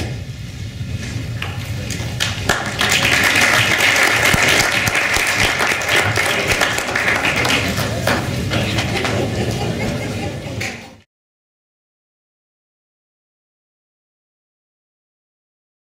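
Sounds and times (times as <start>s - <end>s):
audience applauding: 1.9s - 10.7s.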